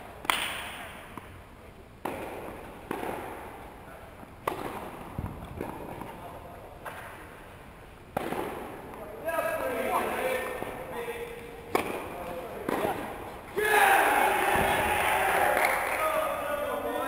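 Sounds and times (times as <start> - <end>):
tennis balls struck by rackets: 0.0 - 1.4, 2.0 - 7.5, 8.1 - 13.5.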